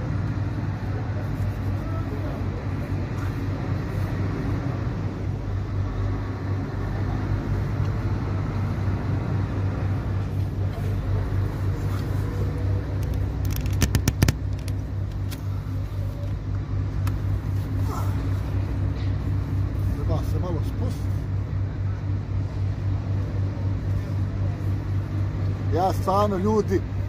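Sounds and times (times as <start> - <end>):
diesel truck engine idling: 0.0 - 27.0
sharp clicks: 13.0 - 15.4.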